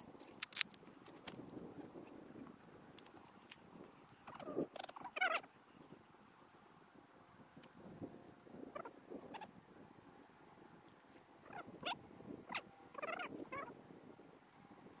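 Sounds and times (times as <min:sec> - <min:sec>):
faint animal calls: 0:04.2 - 0:06.0, 0:08.4 - 0:09.8, 0:11.0 - 0:14.1
high chirping: 0:04.2 - 0:06.0, 0:08.2 - 0:09.8.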